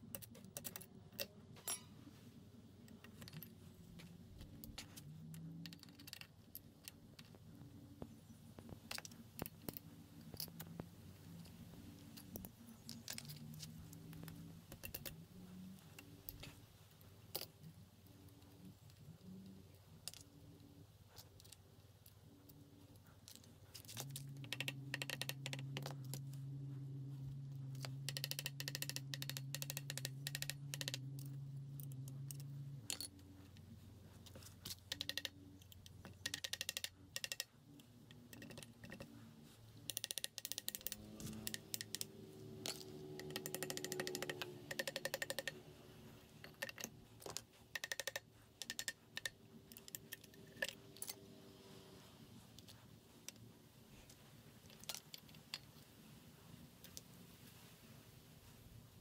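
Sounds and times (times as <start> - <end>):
metallic clicks of hand tools: 0.0 - 1.9, 4.6 - 7.4, 11.4 - 15.2, 23.2 - 26.3, 27.7 - 33.6, 34.2 - 39.2, 39.8 - 51.4
steady low hum: 0.0 - 59.0.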